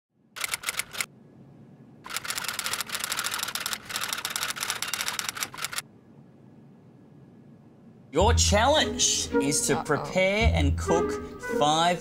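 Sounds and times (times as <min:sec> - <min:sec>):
typewriter keys clattering: 0:02.1 - 0:05.8.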